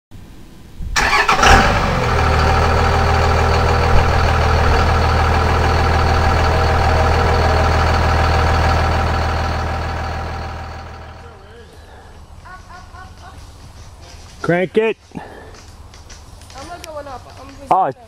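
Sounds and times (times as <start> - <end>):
engine cranking and idling: 1.0 - 11.5.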